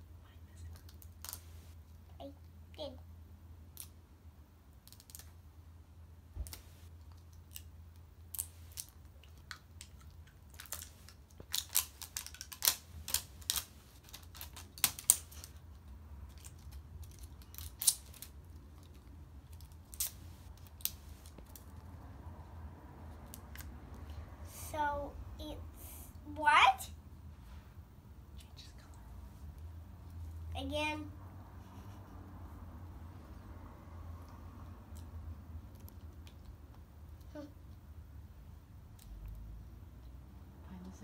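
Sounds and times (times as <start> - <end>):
plastic wrapper crinkling: 10.5 - 15.6.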